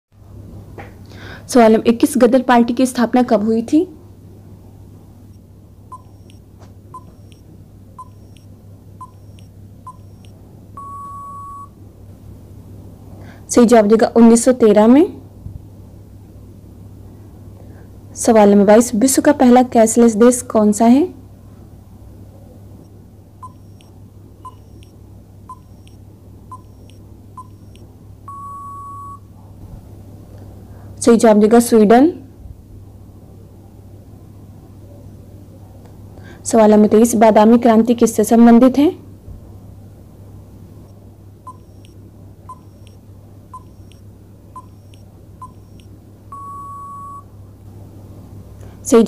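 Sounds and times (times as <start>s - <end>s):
faint steady hum: 0.2s - 49.0s
countdown timer beeps: 5.9s - 6.4s, 7.0s - 7.4s, 8.0s - 11.7s, 23.4s - 23.9s, 24.5s - 24.9s, 25.5s - 29.2s, 41.5s - 43.0s, 43.6s - 44.0s, 44.6s - 47.3s
long beep: 9.0s - 11.8s, 26.5s - 29.2s, 41.5s - 41.9s, 44.6s - 47.3s.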